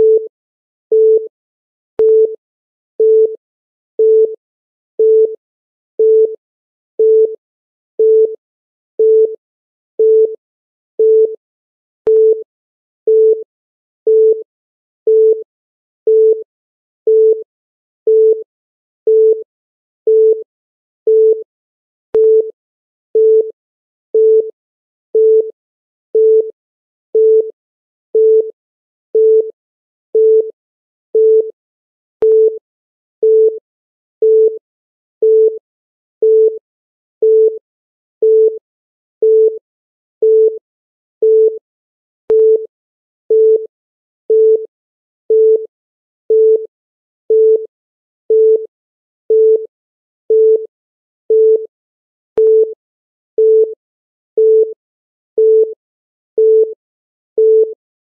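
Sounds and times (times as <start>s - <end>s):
timer beeps: 2.0s - 2.4s, 22.2s - 22.5s, 32.2s - 32.6s, 42.3s - 42.7s, 43.3s - 43.7s, 52.4s - 52.8s, 53.4s - 53.7s, 54.4s - 54.8s.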